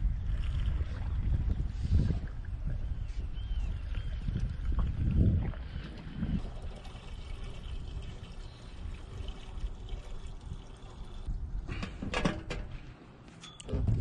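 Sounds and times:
gasoline pouring into tank: 0:05.7 - 0:11.4.

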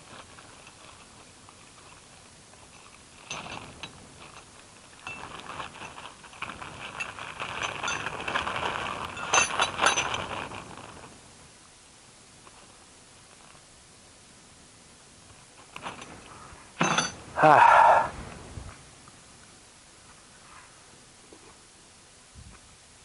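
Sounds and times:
plastic parts clicking and rattling: 0:02.7 - 0:10.6.

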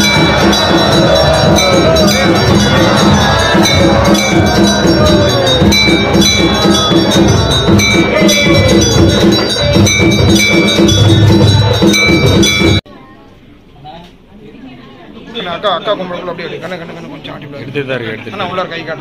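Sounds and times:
bells ringing: 0:00.0 - 0:12.8
steady drum beat: 0:00.0 - 0:12.8.

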